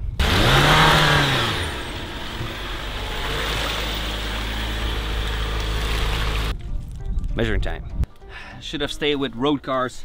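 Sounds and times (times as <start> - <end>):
vehicle engine driving through mud: 0.2 - 6.5.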